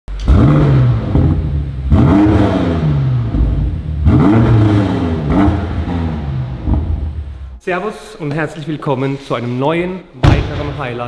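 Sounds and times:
car engine revving: 0.1s - 7.6s.

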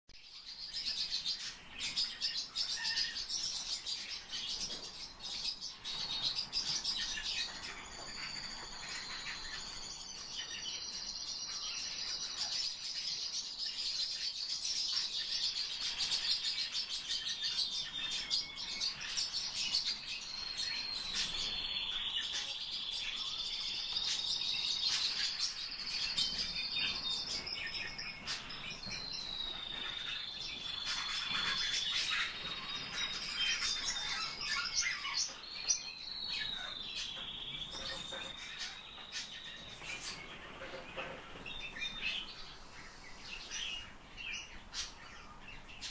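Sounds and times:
finches chirping and singing: 0.2s - 45.9s.

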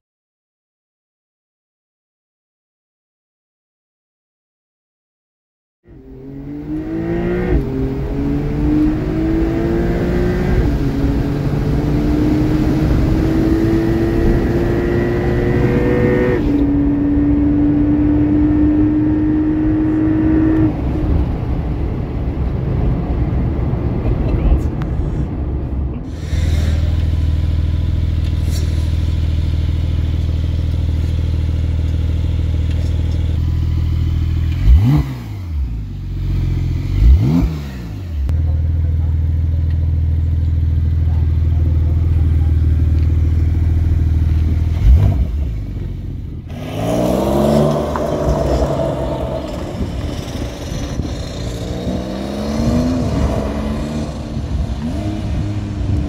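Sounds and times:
car engine accelerating hard: 5.9s - 21.7s, 26.0s - 56.0s
car engine idling: 26.1s - 34.8s, 38.2s - 46.5s.

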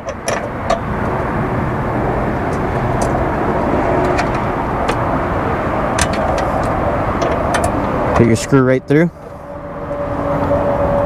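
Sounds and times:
low rumble and hiss of vehicles: 0.0s - 11.0s.

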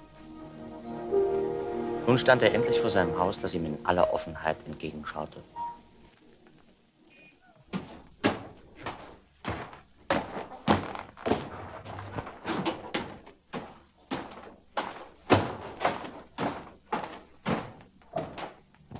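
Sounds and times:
footsteps on stone stairs: 7.8s - 18.9s.

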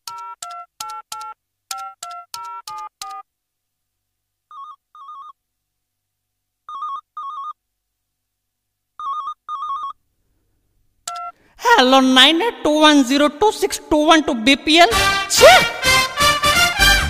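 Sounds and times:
phone keypad beeps: 0.0s - 3.2s, 6.7s - 7.6s, 9.0s - 10.0s, 11.1s - 11.4s
warbling electronic phone ring: 0.1s - 3.2s, 4.5s - 5.4s, 6.7s - 7.6s, 9.0s - 10.0s.

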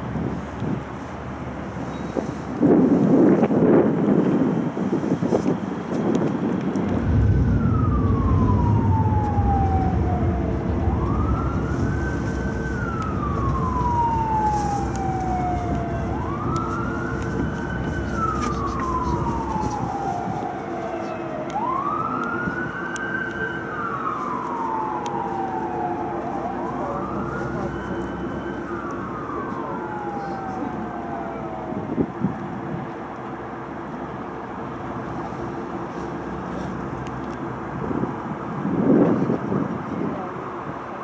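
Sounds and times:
steady low hum: 6.8s - 20.6s
siren wailing: 6.9s - 32.2s.

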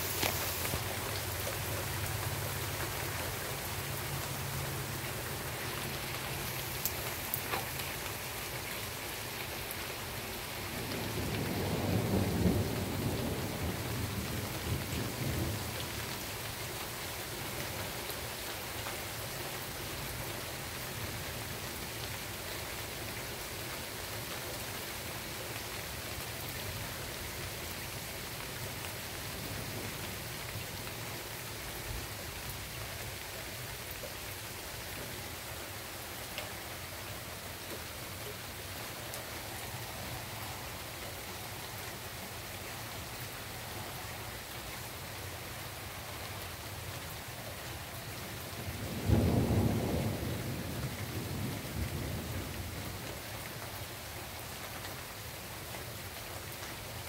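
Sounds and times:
steady rain: 0.0s - 57.0s
low rumble of thunder: 10.6s - 16.0s, 48.4s - 53.3s.

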